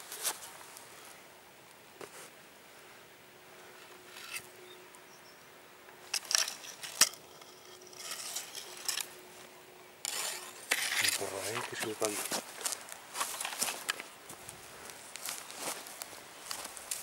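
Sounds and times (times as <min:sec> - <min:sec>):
grass and dry leaves rustling: 0:00.0 - 0:05.0, 0:05.9 - 0:17.0.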